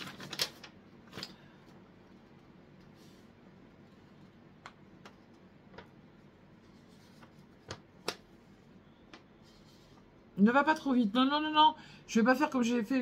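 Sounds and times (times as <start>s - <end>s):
paper card clicks and taps: 7.2s - 8.3s.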